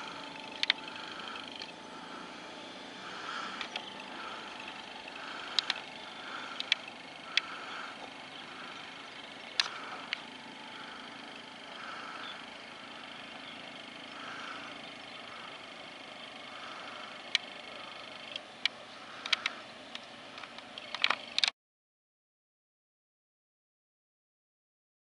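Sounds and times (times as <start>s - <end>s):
distant road traffic: 0.0s - 21.5s.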